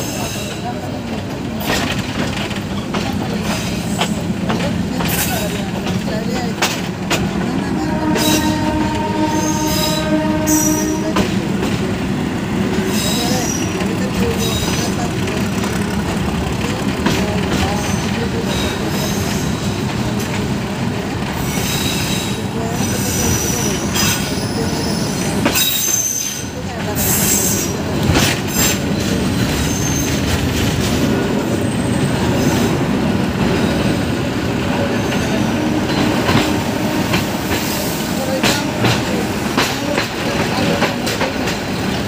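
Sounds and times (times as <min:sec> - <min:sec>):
rail-joint clicks: 0:00.0 - 0:09.1, 0:09.7 - 0:32.8, 0:34.6 - 0:42.0
train wheels rumbling on rails: 0:00.0 - 0:42.0
high wheel squeal: 0:21.4 - 0:27.8, 0:29.4 - 0:30.2.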